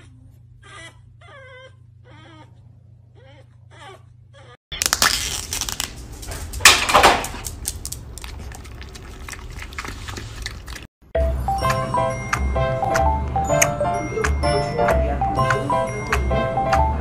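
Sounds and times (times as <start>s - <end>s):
foil lid crinkling as peeled: 4.8s - 6.6s
dog licking yogurt cup: 8.2s - 10.9s.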